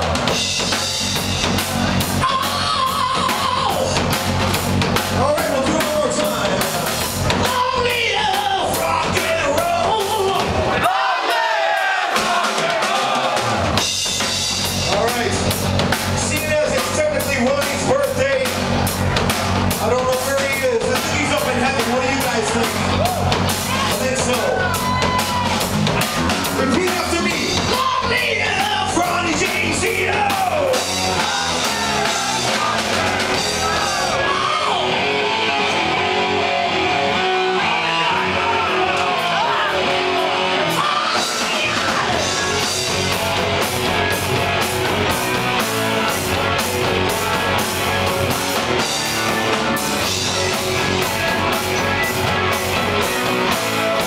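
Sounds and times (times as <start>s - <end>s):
bass guitar: 0.0s - 11.0s, 12.0s - 54.0s
drum kit: 0.0s - 54.0s
electric guitar: 30.5s - 54.0s.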